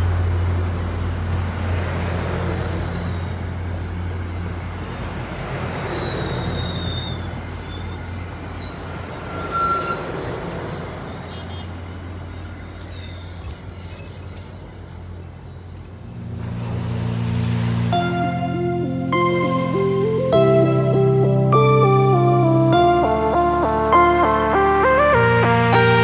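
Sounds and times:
train coaches rumbling past: 0.0 - 21.4
wheels squealing: 2.4 - 3.5, 5.7 - 17.9
music: 17.9 - 26.0.

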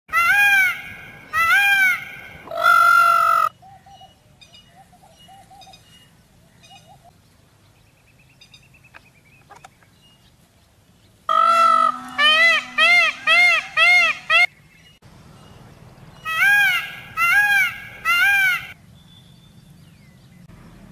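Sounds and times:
peacock wailing calls: 0.1 - 4.1, 11.3 - 14.5, 16.2 - 18.8.

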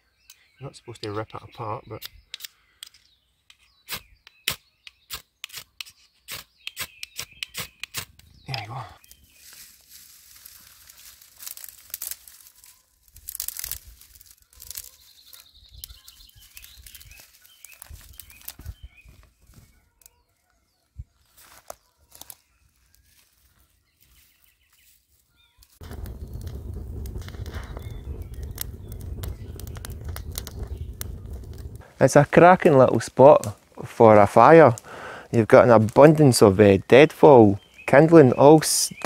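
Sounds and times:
tinder tearing and crumpling: 7.6 - 20.4, 21.3 - 32.1
low rumble: 25.8 - 32.0.

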